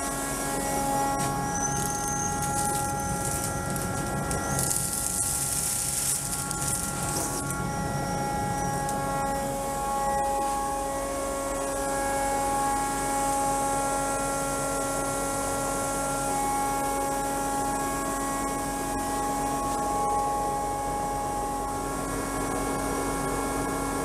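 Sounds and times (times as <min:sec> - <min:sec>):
dust collector humming and whining: 0:00.0 - 0:24.0.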